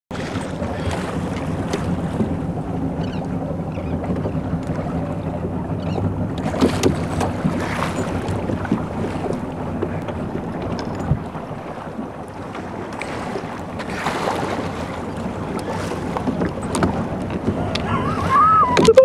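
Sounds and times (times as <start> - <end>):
motorboat engine running: 0.1 - 19.0
wind on microphone: 3.8 - 19.0.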